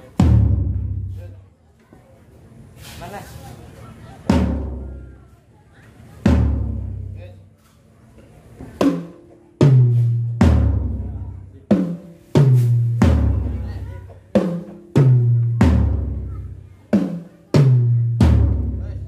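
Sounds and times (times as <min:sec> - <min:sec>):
drums struck one at a time: 0:00.2 - 0:01.3, 0:04.3 - 0:05.2, 0:06.2 - 0:07.2, 0:08.8 - 0:19.0.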